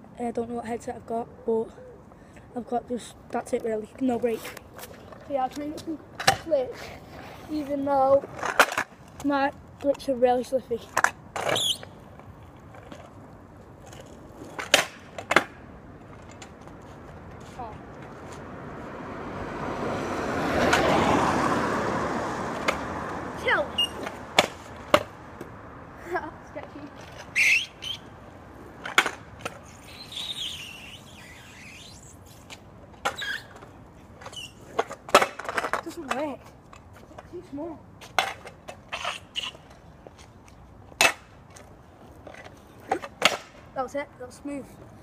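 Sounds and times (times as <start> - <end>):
scooter rolling on tarmac: 0.2 - 45.0
scooter scraping squeal: 11.4 - 12.0, 23.4 - 24.2, 27.0 - 28.2, 28.9 - 35.2, 38.9 - 39.8
scooter clacking on road: 13.8 - 25.8.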